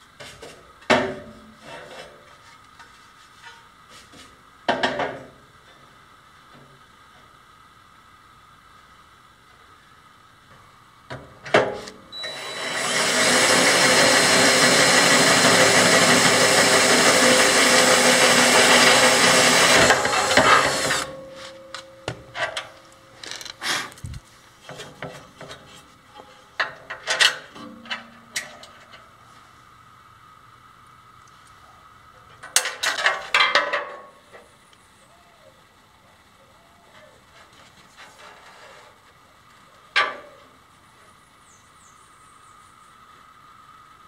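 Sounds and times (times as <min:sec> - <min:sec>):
cordless drill drilling into metal: 0:12.2 - 0:21.2.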